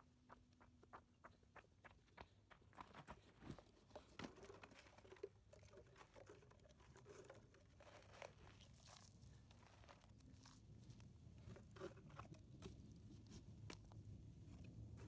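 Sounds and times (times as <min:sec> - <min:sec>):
footsteps crunching on stony soil: 0:00.3 - 0:04.5
plastic bottles crinkling: 0:03.4 - 0:13.9.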